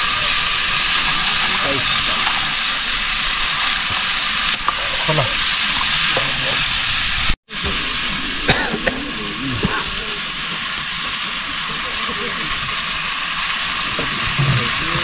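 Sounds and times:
food sizzling in a metal pan: 0.0 - 15.0.

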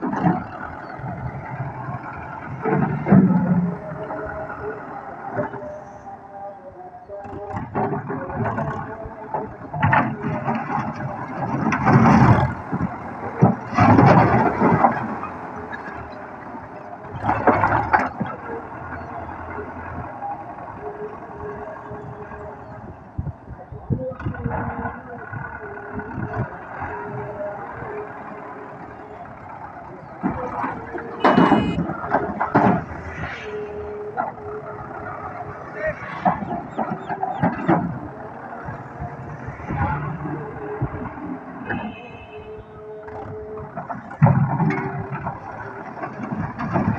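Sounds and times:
tractor diesel engine under load: 0.0 - 46.9
brick rubble clattering: 7.6 - 20.5, 43.7 - 46.9.

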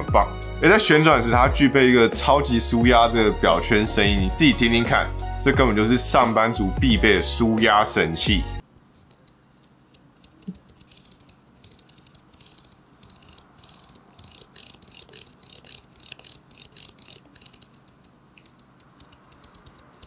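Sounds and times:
watch bezel detent clicks: 9.2 - 20.0.

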